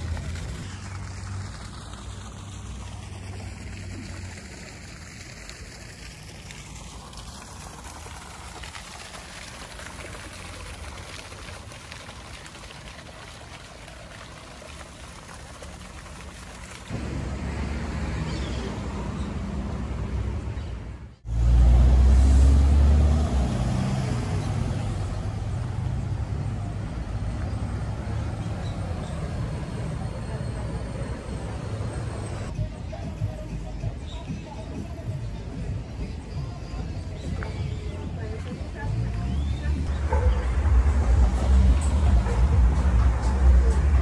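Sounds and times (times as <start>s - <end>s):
vehicle engine running: 0.0s - 5.8s, 38.1s - 44.0s
fountain water splashing: 0.0s - 44.0s
street traffic: 0.0s - 44.0s.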